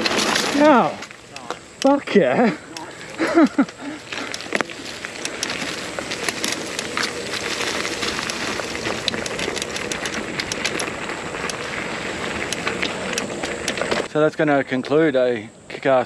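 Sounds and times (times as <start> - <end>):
bike clicks and rattles: 0.0 - 14.1
bike tyres on leafy dirt trail: 0.0 - 16.0.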